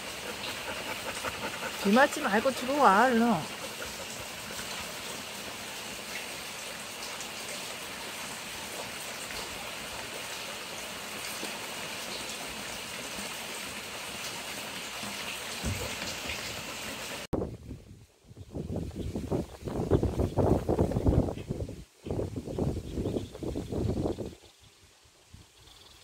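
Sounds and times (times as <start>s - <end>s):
steady rain patter: 0.0s - 17.3s.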